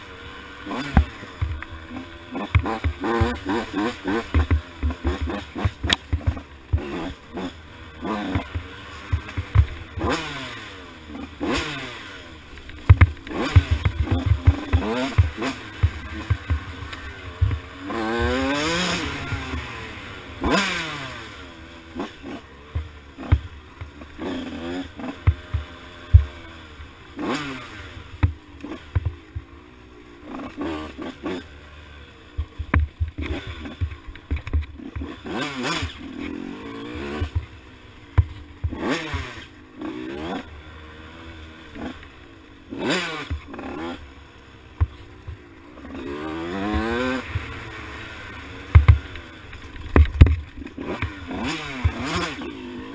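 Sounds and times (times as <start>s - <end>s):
dirt bike engine revving: 0.0s - 52.9s
bike knocks and clatter: 2.5s - 7.0s, 8.3s - 10.2s, 12.6s - 19.5s, 22.8s - 24.2s, 25.2s - 26.4s, 28.2s - 29.5s, 32.4s - 35.9s, 48.7s - 52.4s.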